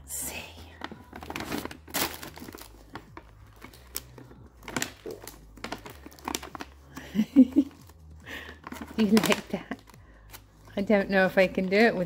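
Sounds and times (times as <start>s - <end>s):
plastic packaging crinkling: 0.6s - 12.0s.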